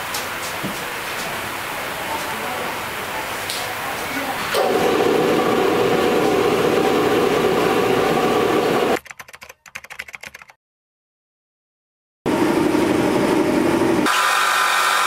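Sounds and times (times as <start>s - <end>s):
factory machinery drone: 0.0s - 9.0s, 12.3s - 15.0s
keyboard typing clicks: 9.0s - 10.6s.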